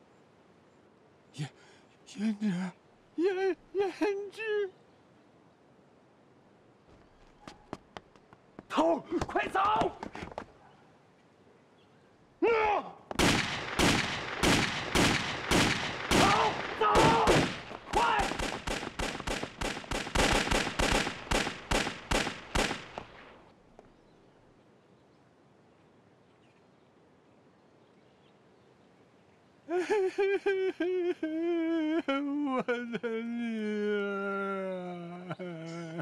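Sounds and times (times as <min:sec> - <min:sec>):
pistol shots: 0:13.1 - 0:23.4.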